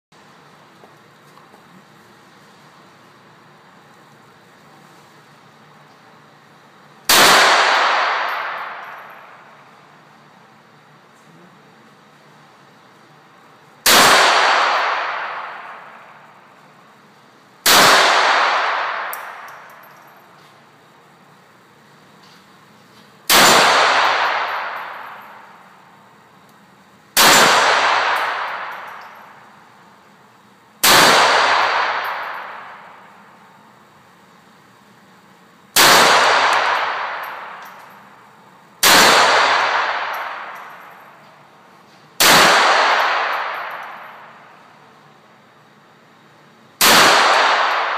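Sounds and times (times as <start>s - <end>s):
pistol shots echoing: 7.1s - 9.6s, 13.8s - 16.3s, 17.6s - 20.1s, 23.3s - 25.8s, 27.2s - 29.6s, 30.8s - 33.1s, 35.8s - 38.0s, 38.8s - 41.2s, 42.2s - 44.6s, 46.8s - 47.9s.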